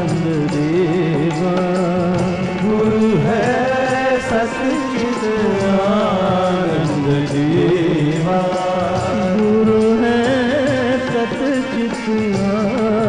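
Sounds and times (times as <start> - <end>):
instrumental accompaniment: 0.0 - 13.0
man singing devotional song: 0.0 - 13.0
percussion beat: 0.0 - 13.0.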